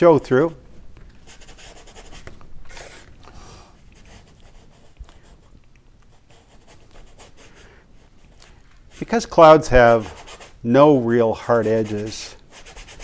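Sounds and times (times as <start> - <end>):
paintbrush scrubbing on canvas: 6.2 - 13.0.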